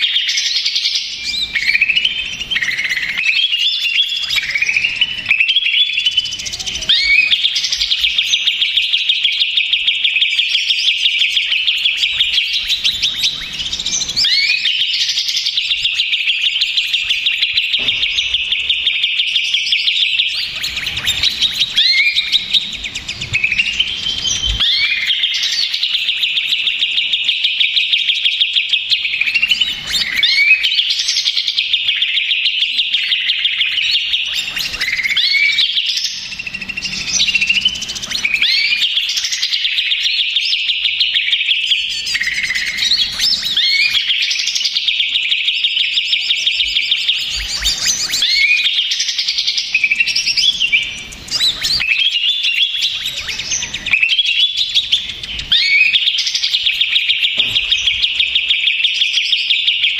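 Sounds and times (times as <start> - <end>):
bird singing chattering whistles: 0.0 - 59.9.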